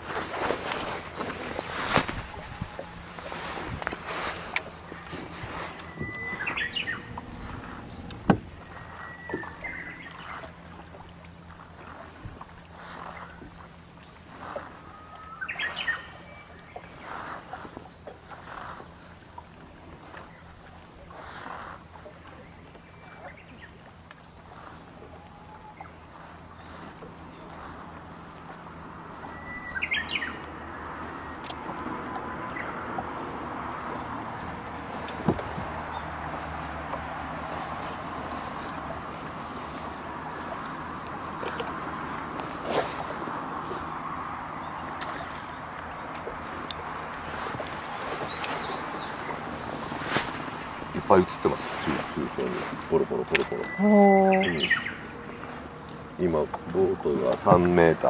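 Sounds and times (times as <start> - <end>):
soft rushing noise: 0.0 - 10.3
low hum: 0.0 - 14.2
small birds chirping: 4.4 - 10.5, 15.3 - 19.1, 20.3 - 31.6, 33.6 - 58.0
bird call: 4.9 - 10.5, 14.6 - 18.1, 29.2 - 30.4, 47.3 - 49.4, 51.6 - 55.7.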